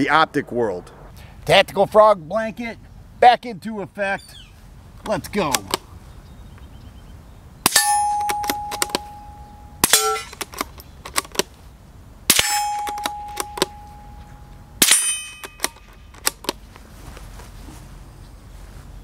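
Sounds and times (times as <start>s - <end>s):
rifle bolt clicks: 5.0s - 5.8s, 8.1s - 9.0s, 9.8s - 11.5s, 14.9s - 16.6s
rifle shots: 7.6s - 9.2s, 9.8s - 11.3s, 12.3s - 13.8s, 14.8s - 16.4s
steel targets ringing: 7.6s - 10.4s, 12.3s - 15.7s.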